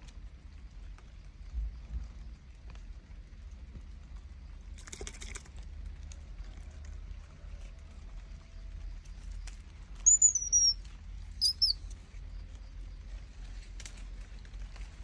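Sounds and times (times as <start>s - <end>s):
animal squeak: 10.0s - 10.8s, 11.4s - 11.8s
animal falling whistle: 10.1s - 10.8s.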